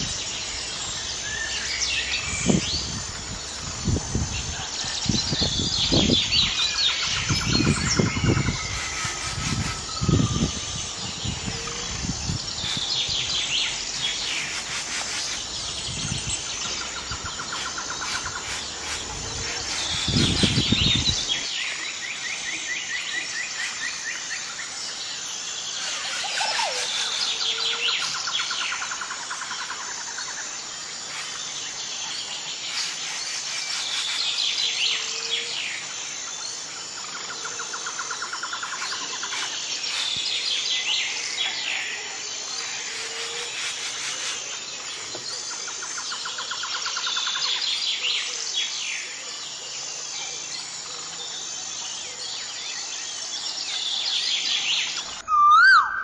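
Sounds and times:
songbirds chirping and trilling: 0.0s - 56.0s.

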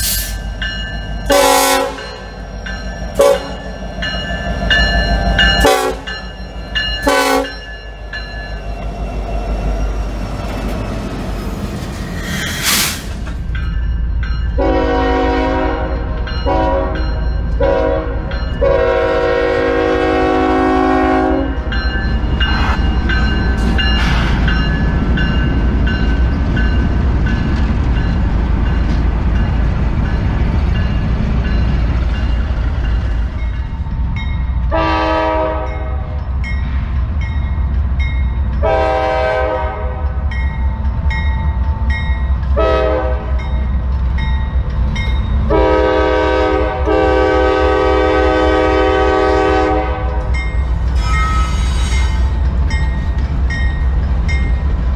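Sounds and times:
locomotive air horn blasts: 1.3s - 2.2s, 3.2s - 3.6s, 5.6s - 6.1s, 7.0s - 7.6s, 14.6s - 17.0s, 17.6s - 21.6s, 34.7s - 36.2s, 38.6s - 40.0s, 42.6s - 43.4s, 45.5s - 50.2s.

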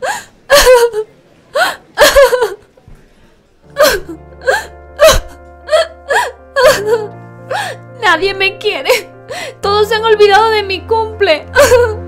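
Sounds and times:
woman sobbing: 0.0s - 2.6s, 3.7s - 7.9s, 8.9s - 9.7s, 11.4s - 12.0s
background music with held notes: 0.1s - 12.0s.

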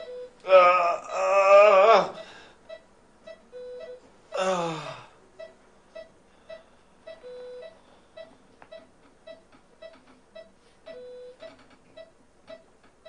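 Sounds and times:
longer lower monitor tone: 0.0s - 2.3s, 3.4s - 8.3s
patient monitor beeping: 0.0s - 12.7s.

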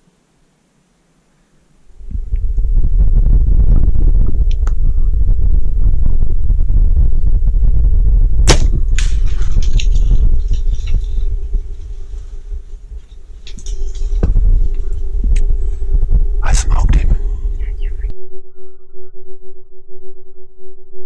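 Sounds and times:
low rumble: 1.8s - 21.0s
scattered crackling: 1.9s - 18.1s
sharp crack: 8.4s - 11.6s.

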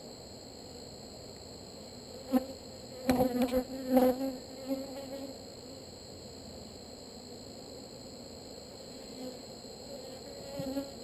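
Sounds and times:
honeybees buzzing: 2.2s - 5.4s, 8.9s - 11.0s.

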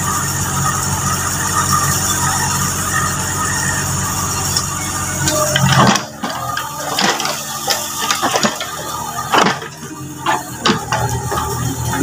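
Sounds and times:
mini excavator engine rumble: 0.0s - 12.0s
scattered knocks: 5.6s - 11.7s.

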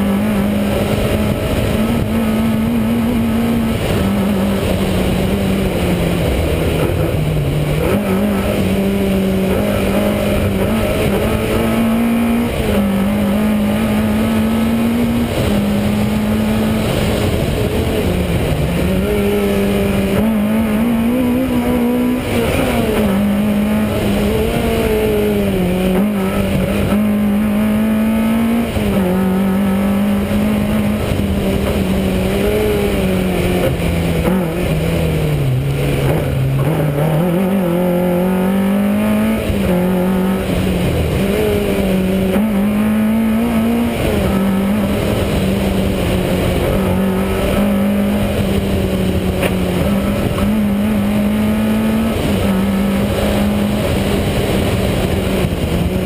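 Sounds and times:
car engine revving hard: 0.0s - 56.0s.

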